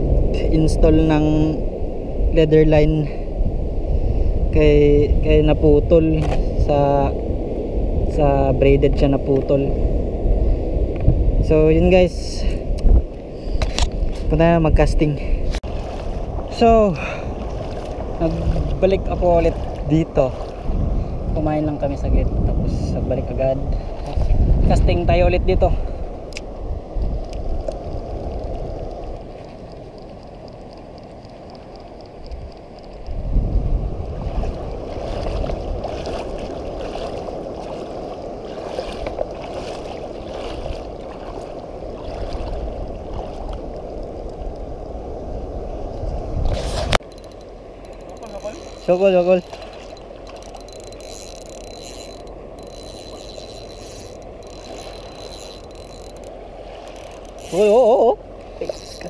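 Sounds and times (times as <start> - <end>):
wind noise on microphone: 0.0 - 59.0
fishing cast clicks: 46.8 - 59.0
fishing reel ticking: 47.0 - 59.0.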